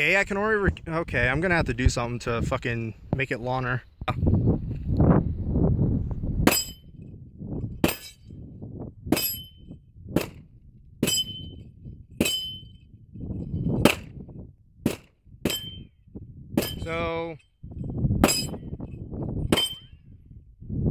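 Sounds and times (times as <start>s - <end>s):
low rumble: 3.8s - 20.9s
metallic ping of steel targets: 6.4s - 7.0s, 9.1s - 9.8s, 11.0s - 11.6s, 12.2s - 12.8s, 14.9s - 16.0s, 16.6s - 17.0s, 18.2s - 18.7s, 19.5s - 20.0s.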